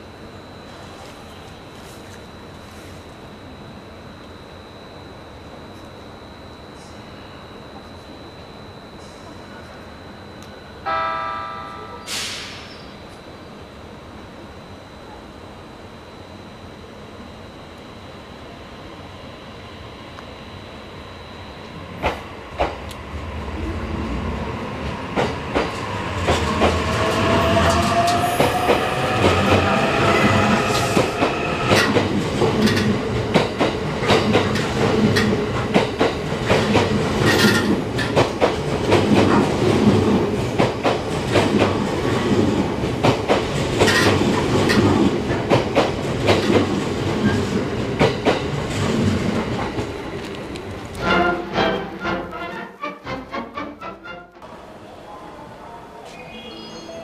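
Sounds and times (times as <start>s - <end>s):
electric train motors whining: 15.6s - 38.0s.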